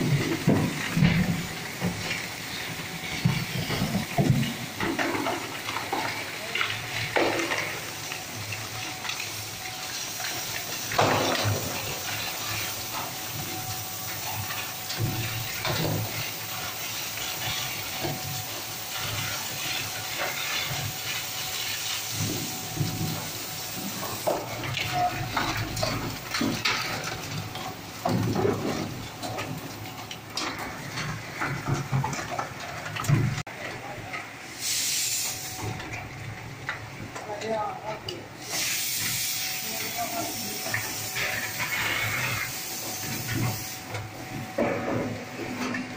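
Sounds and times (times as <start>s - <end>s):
shredder churning plastic: 0.0s - 34.2s.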